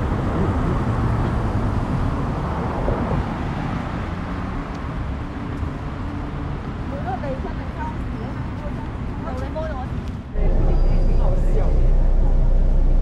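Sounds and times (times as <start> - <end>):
low outdoor rumble: 7.0 - 13.0.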